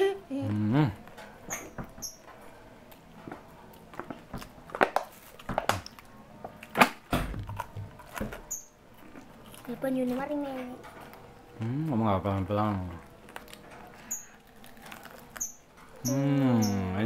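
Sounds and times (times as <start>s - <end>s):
paper wrapping crinkling: 12.6s - 16.0s.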